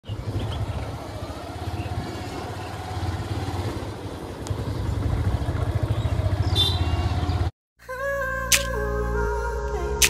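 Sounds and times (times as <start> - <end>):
motorcycle engine running: 0.1 - 7.5.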